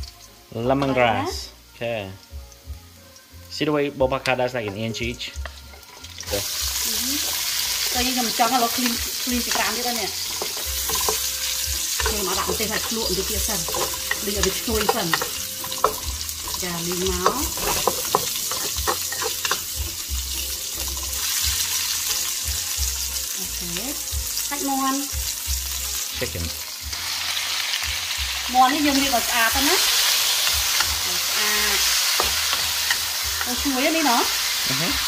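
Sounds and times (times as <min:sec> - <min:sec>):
garlic sizzling in hot oil: 0:00.0 - 0:35.0
spatula clicking and scraping wok: 0:05.4 - 0:22.4, 0:28.6 - 0:34.6.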